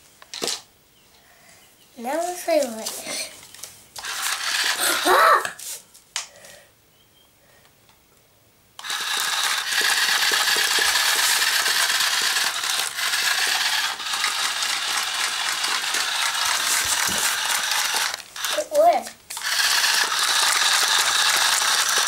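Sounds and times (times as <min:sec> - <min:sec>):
legs clicking and rattling: 0:04.0 - 0:05.0, 0:08.8 - 0:22.0
toy motor whirring: 0:04.0 - 0:05.6, 0:08.8 - 0:22.0.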